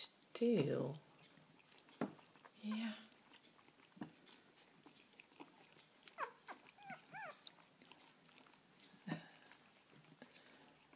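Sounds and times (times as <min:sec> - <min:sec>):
puppies squeaking: 0:01.2 - 0:08.2.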